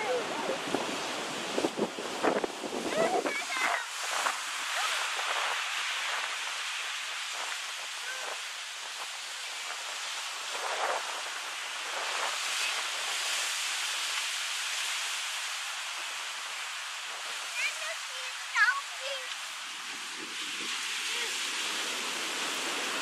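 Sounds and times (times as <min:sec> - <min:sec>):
small waves breaking on beach: 0:00.0 - 0:23.0.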